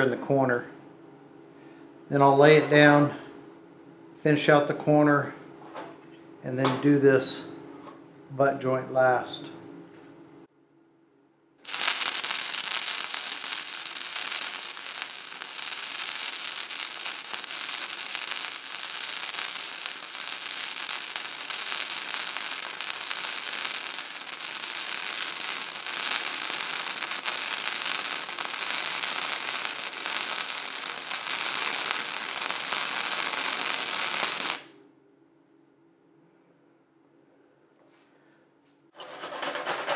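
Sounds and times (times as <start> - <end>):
welding arc crackling: 11.6 - 34.7.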